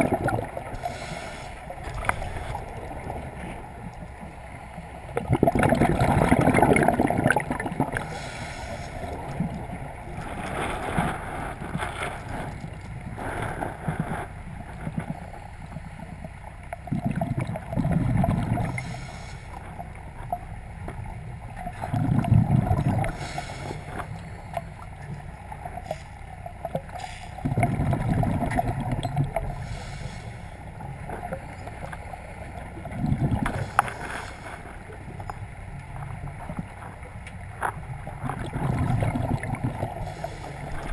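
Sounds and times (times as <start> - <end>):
gurgling exhaled bubbles: 0.0 - 4.3, 5.0 - 14.1, 16.8 - 19.2, 21.6 - 24.4, 26.6 - 30.2, 32.8 - 35.3, 38.2 - 40.9.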